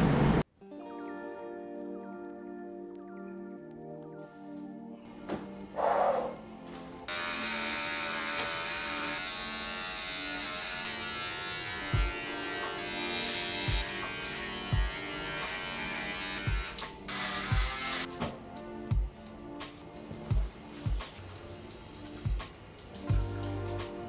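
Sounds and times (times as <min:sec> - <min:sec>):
electric razor buzzing: 0:07.1 - 0:18.1
music with slow bass beat: 0:12.0 - 0:12.2, 0:13.7 - 0:15.0, 0:16.4 - 0:16.8, 0:17.5 - 0:21.2, 0:22.2 - 0:24.0.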